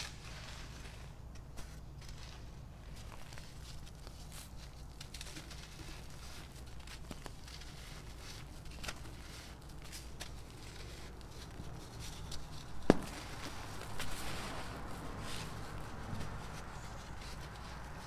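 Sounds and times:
charcoal crackles: 0.0s - 18.0s
sand crunching and trickling: 0.0s - 18.0s
sharp crack: 12.8s - 14.2s.

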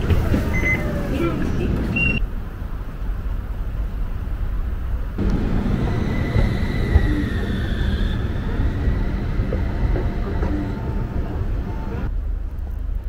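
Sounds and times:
tram rumbling: 0.0s - 13.0s
faint high whine: 5.2s - 12.1s.

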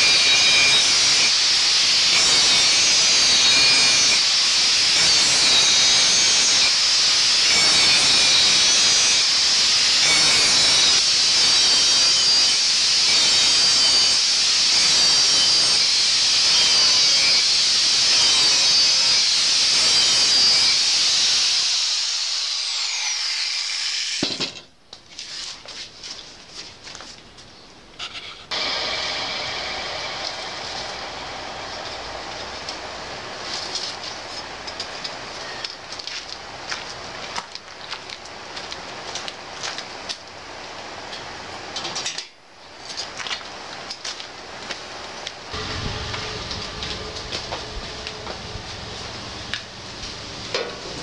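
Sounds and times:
angle grinder grinding steel: 0.0s - 24.3s, 28.5s - 35.7s, 45.5s - 51.0s
grinder disc spinning down: 45.5s - 50.3s.

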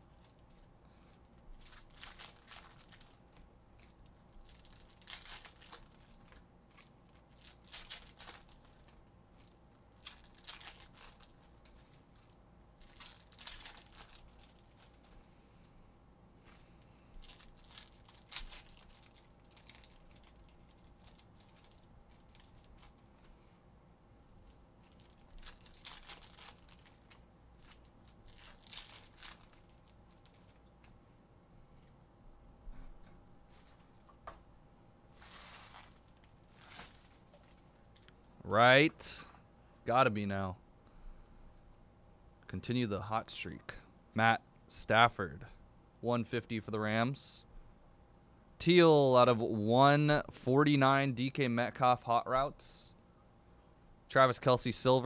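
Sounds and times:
foil packs tearing and crinkling: 1.6s - 15.1s, 17.2s - 23.0s, 24.8s - 30.6s, 35.1s - 37.6s.

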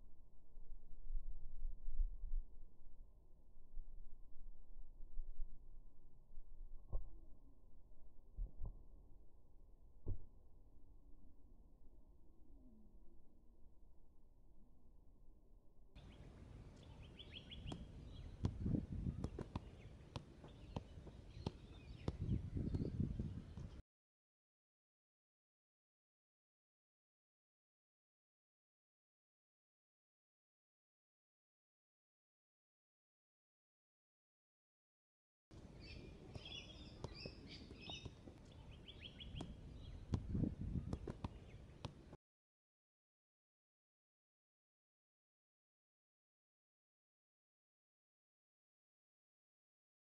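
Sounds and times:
birds chirping: 16.0s - 23.8s, 35.7s - 42.1s
football taps on feet: 17.7s - 22.9s, 39.3s - 42.0s.

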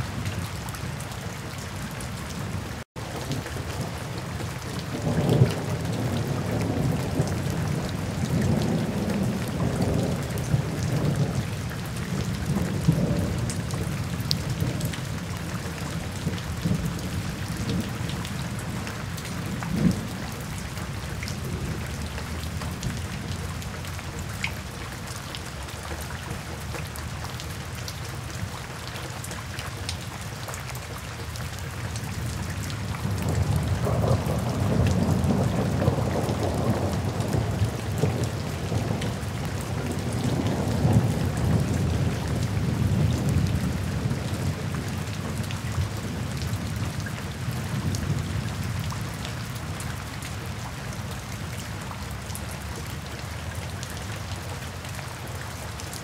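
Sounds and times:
heavy rain: 0.0s - 56.0s
low thunder rumbling: 33.0s - 47.0s.

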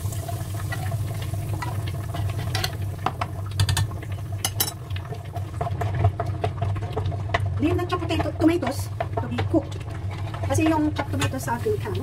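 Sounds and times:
spoon scraping pan: 1.6s - 2.8s, 8.6s - 11.8s.

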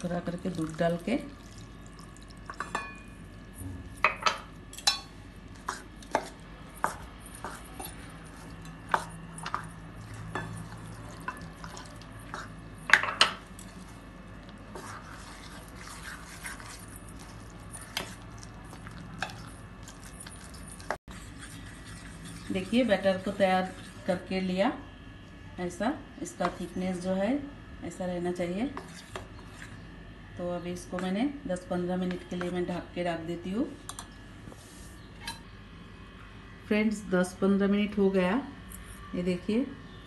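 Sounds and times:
spoon clinking against metal bowl: 2.5s - 3.2s, 4.0s - 5.1s
spoon stirring thick batter: 13.4s - 24.4s, 28.6s - 29.8s.

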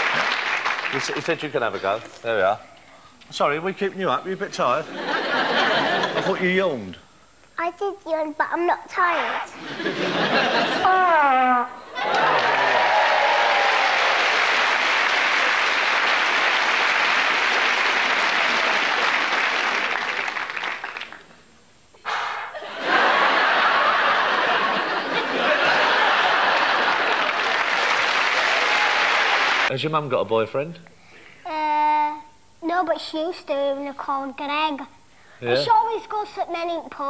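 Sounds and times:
audience applauding: 0.0s - 1.7s, 12.0s - 21.3s, 22.9s - 29.7s
audience laughter: 4.9s - 6.5s, 9.6s - 10.9s, 12.0s - 12.9s, 22.5s - 29.7s.

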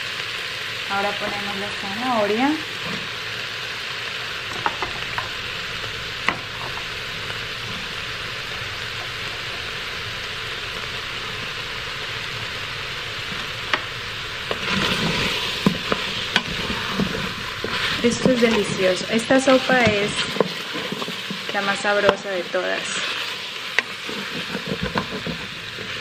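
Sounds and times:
food sizzling in a pot: 0.0s - 26.0s
wooden spoon stirring: 13.4s - 21.6s, 22.9s - 26.0s.

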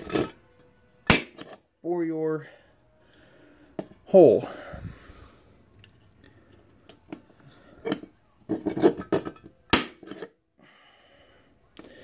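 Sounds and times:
center punch snapping: 1.1s - 1.5s.

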